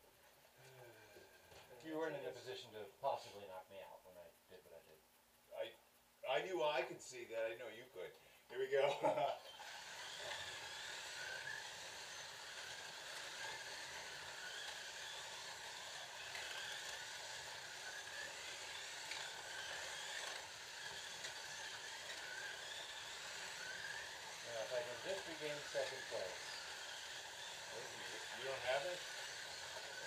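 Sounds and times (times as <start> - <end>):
slot cars whirring and whining: 9.4 - 30.0.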